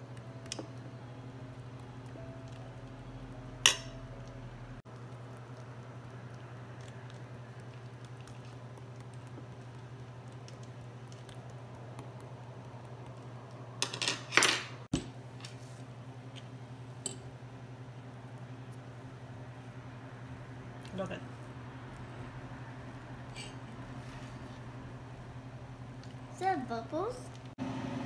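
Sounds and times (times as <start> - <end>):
low hum: 0.0 - 13.8.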